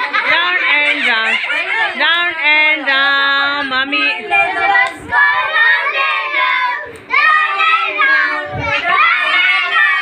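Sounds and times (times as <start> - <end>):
children singing: 4.2 - 10.0.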